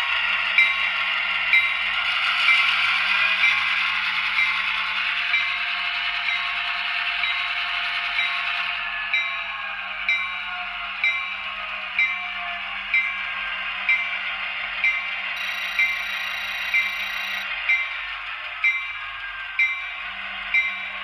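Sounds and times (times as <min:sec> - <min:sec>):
model locomotive bell ringing: 0:14.8 - 0:21.0
steady engine hum: 0:15.4 - 0:18.6.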